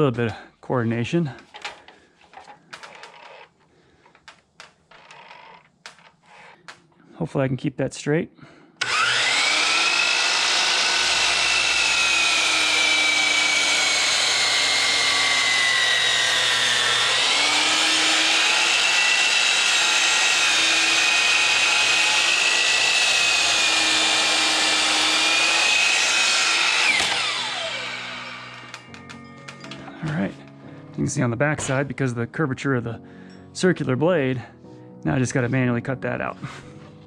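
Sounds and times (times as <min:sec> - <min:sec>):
circular saw cutting wood: 0:08.8 - 0:29.0.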